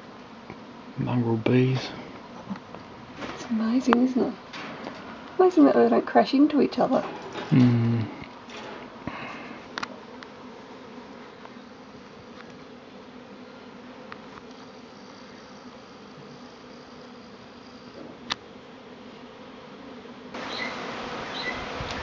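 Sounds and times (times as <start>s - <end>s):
bee swarm humming: 0.0s - 22.0s
bird chirping calls: 20.4s - 21.7s.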